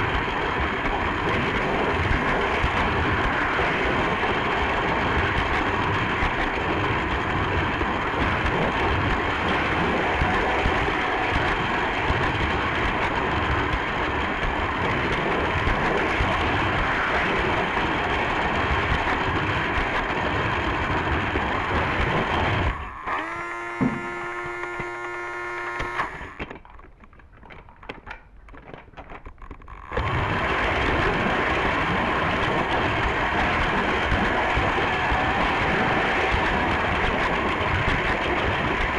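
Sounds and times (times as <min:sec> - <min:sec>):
toy train pitched whine: 0:00.0 - 0:26.6
toy train whirring on track: 0:00.0 - 0:26.6, 0:29.1 - 0:38.9
quiet clicks: 0:25.6 - 0:30.1.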